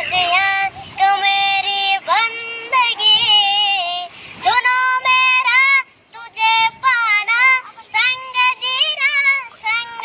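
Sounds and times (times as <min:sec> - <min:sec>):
boy singing unaccompanied: 0:00.0 - 0:10.0
quick breath: 0:04.1 - 0:04.4.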